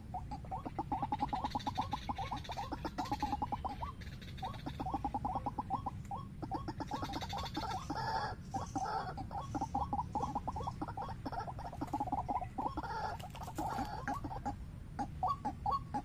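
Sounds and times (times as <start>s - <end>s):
bird calling rapid repeated notes: 0.0s - 16.0s.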